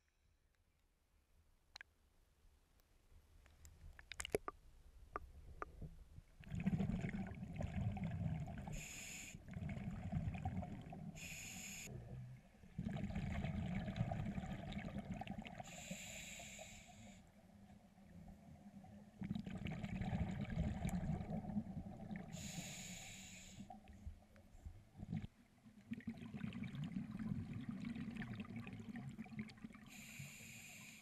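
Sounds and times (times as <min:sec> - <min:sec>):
underwater exhaled bubbles: 0:06.4 - 0:17.1, 0:19.1 - 0:22.8, 0:25.0 - 0:30.4
short high-pitched hisses: 0:08.8 - 0:09.4, 0:11.2 - 0:11.9, 0:22.4 - 0:23.7, 0:29.9 - 0:31.0.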